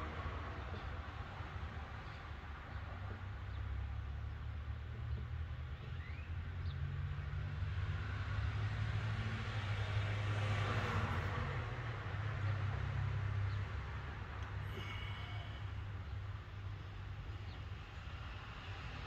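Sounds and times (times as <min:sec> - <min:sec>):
vehicle passing by: 0:06.4 - 0:15.6.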